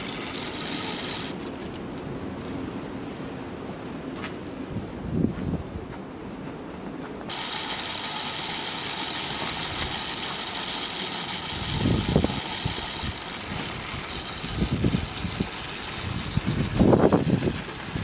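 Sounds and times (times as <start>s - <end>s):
model train motors whining: 0.0s - 1.6s, 7.3s - 18.0s
low rumbling buffets: 7.3s - 18.0s.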